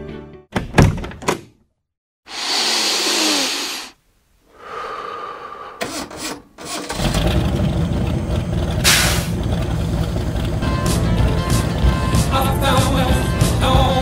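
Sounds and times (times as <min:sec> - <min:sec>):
loud low motor rumble: 0:07.0 - 0:12.4.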